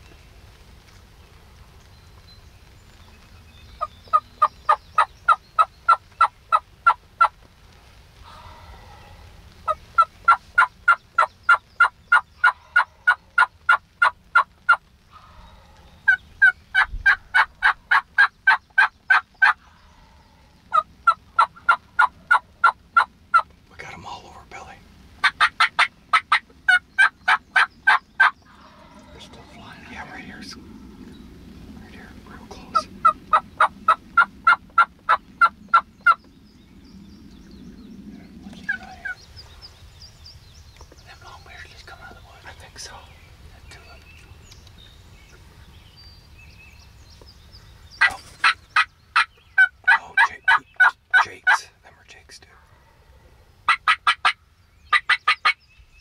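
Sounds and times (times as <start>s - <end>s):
turkey yelping: 9.7s - 19.6s, 20.7s - 23.5s, 25.2s - 29.2s, 32.7s - 36.2s, 48.0s - 51.6s, 53.7s - 55.6s.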